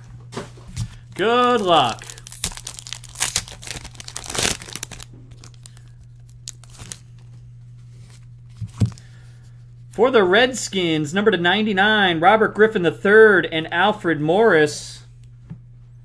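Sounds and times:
card pack wrapper tearing and crinkling: 0:01.2 - 0:07.3.

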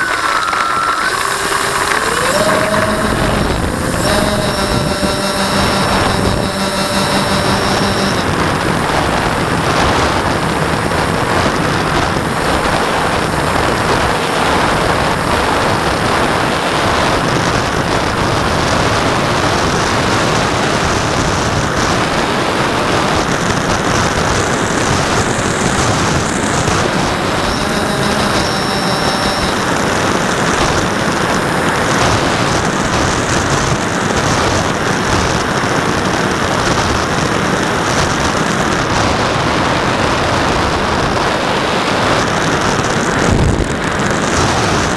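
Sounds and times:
motor whine: 0:00.0 - 0:36.0
model plane motors and propellers: 0:00.0 - 0:44.9.

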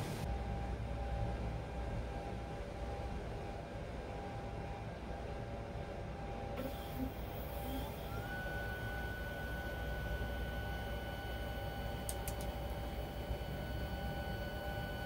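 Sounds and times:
stepper motor whine: 0:06.6 - 0:15.0.

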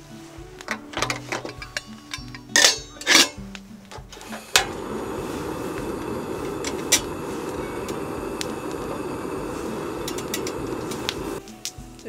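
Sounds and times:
gas burner running: 0:04.1 - 0:11.4
gas stove ignition click: 0:04.2 - 0:11.4.

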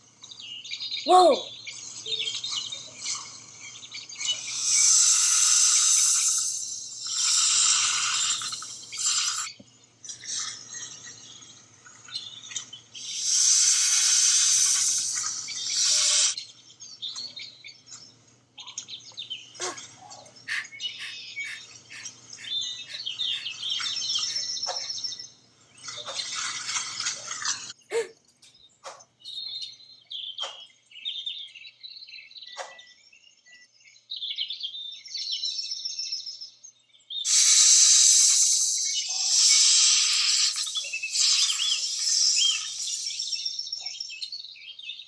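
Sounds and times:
birds chirping: 0:00.0 - 0:45.0
forest ambience: 0:00.0 - 0:45.0
loud hissing noise: 0:04.3 - 0:09.5, 0:13.0 - 0:16.4, 0:37.3 - 0:43.4.

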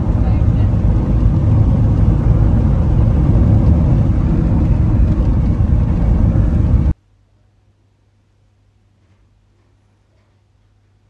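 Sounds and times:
car interior road rumble: 0:00.0 - 0:07.0.

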